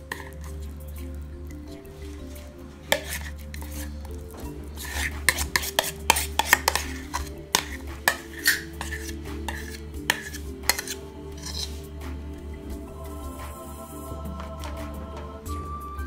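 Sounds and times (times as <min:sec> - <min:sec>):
metal spoon scraping metal bowl: 0:00.0 - 0:00.8, 0:02.0 - 0:12.0.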